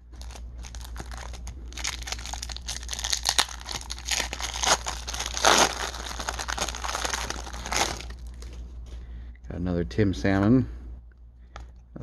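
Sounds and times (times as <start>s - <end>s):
card pack wrapper tearing: 0.2s - 8.5s.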